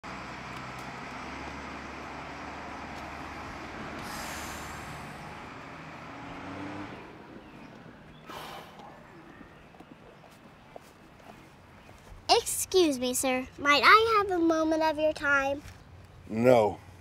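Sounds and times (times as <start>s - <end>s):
bus engine running: 0.0s - 11.7s
air brakes hissing: 3.9s - 5.5s, 8.2s - 8.8s.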